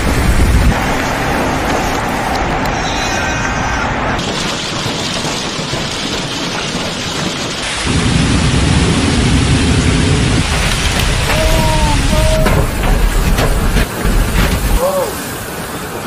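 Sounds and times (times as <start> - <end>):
torrential rain: 0.0 - 16.0
heavy low rumble: 7.6 - 15.0.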